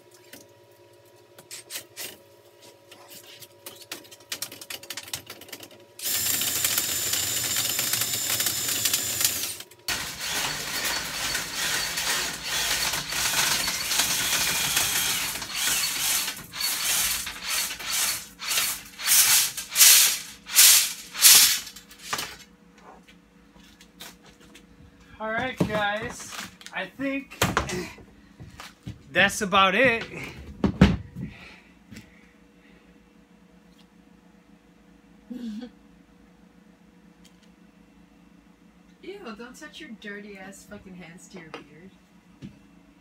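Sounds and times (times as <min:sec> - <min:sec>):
cordless drill running: 0:06.0 - 0:21.5.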